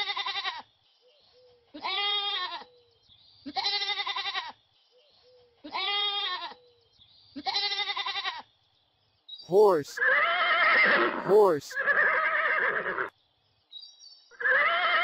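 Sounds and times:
goat bleating: 0:00.0 - 0:00.7, 0:01.7 - 0:02.7, 0:03.5 - 0:04.6, 0:05.6 - 0:06.6, 0:07.4 - 0:08.5.

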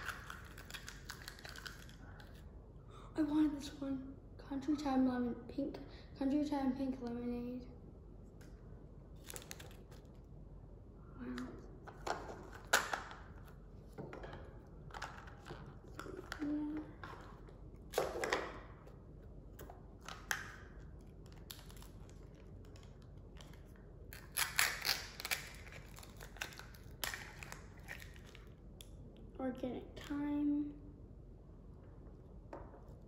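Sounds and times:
plastic wrapping crinkling: 0:00.0 - 0:02.4, 0:09.1 - 0:10.2.

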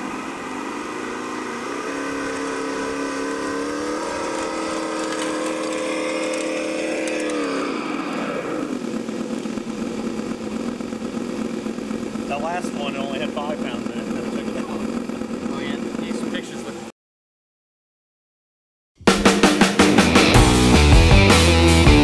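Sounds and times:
toy truck motors whining: 0:00.0 - 0:16.8.

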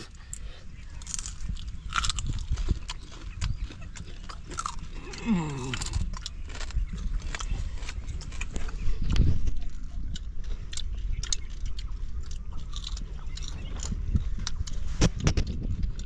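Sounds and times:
prawns being chewed crunchily: 0:00.0 - 0:16.0
person humming: 0:05.0 - 0:06.0.

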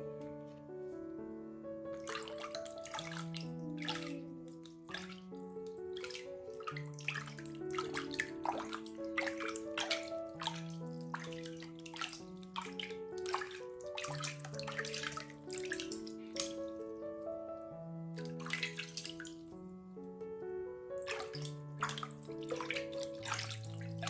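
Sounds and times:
slow background music: 0:00.0 - 0:24.0
water splashing in a plastic tub: 0:02.0 - 0:16.8, 0:18.2 - 0:19.5, 0:21.0 - 0:24.0.

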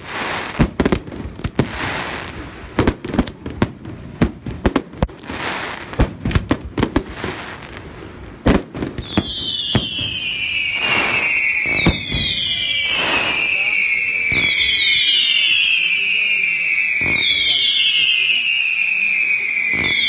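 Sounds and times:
crackling firework bursts: 0:00.0 - 0:20.0
falling firework whistle: 0:08.5 - 0:20.0.

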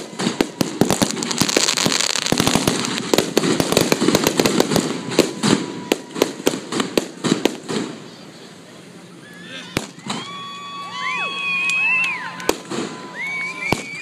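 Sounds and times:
loud firework bang: 0:00.0 - 0:08.0
fireworks crackling pops: 0:00.0 - 0:08.2, 0:09.7 - 0:10.3, 0:11.5 - 0:14.0.

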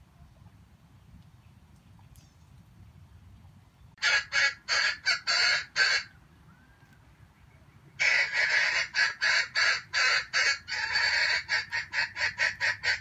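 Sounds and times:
junglefowl cackling: 0:04.0 - 0:06.2, 0:08.0 - 0:13.0.

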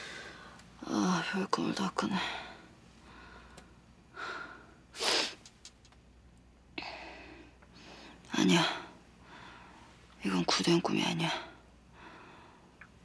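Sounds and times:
woman breathing: 0:00.0 - 0:00.6, 0:02.2 - 0:05.3, 0:06.8 - 0:10.0, 0:11.5 - 0:12.8.

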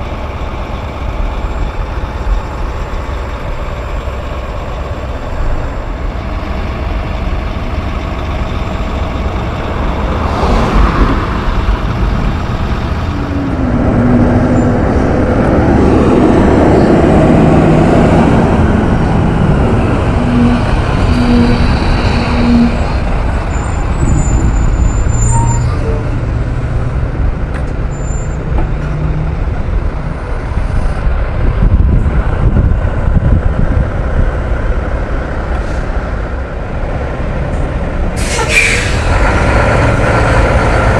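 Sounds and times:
diesel truck engines under load: 0:00.0 - 0:40.9
air hiss: 0:38.2 - 0:39.2.

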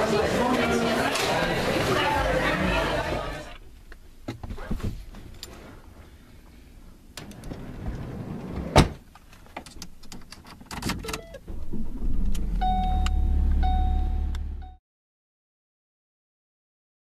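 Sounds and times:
car engine rumbling: 0:03.2 - 0:14.8
dashboard warning chime: 0:12.6 - 0:14.8.

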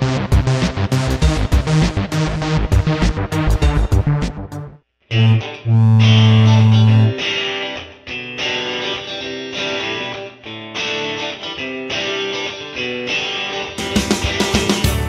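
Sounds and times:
guitar music: 0:05.1 - 0:15.0.

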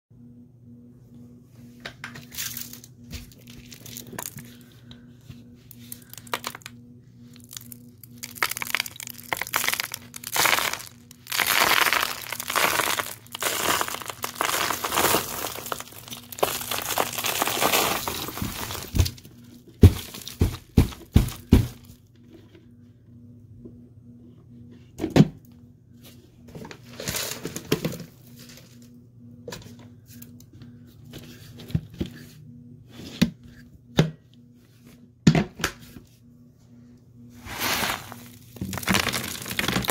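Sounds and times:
faint steady hum: 0:00.1 - 0:39.9
hands crunching debris: 0:05.9 - 0:06.7, 0:07.4 - 0:19.2, 0:19.8 - 0:21.9, 0:37.4 - 0:39.9.

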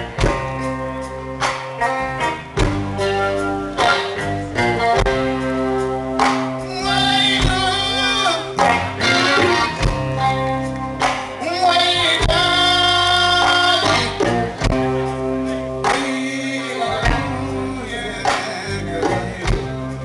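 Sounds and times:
drum kit: 0:00.0 - 0:20.0
electric bass: 0:00.0 - 0:20.0
electric guitar: 0:00.0 - 0:20.0
man singing long held notes: 0:06.6 - 0:09.4, 0:11.4 - 0:14.2, 0:15.0 - 0:20.0.

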